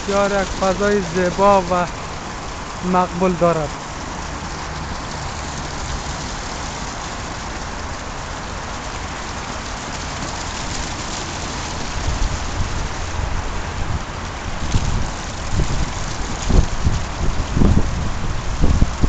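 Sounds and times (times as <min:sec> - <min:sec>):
low rumbles: 0:00.0 - 0:08.1
fountain water splashing: 0:00.0 - 0:19.0.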